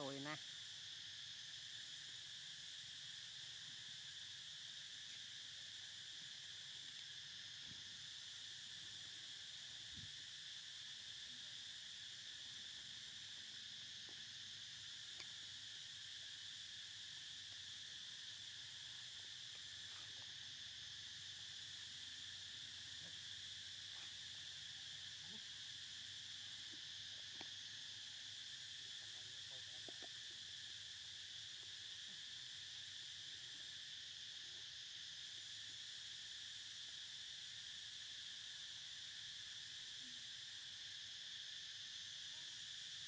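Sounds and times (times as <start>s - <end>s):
insects droning: 0.0s - 43.0s
faint ticks: 6.2s - 7.8s, 15.1s - 15.4s, 26.7s - 27.6s.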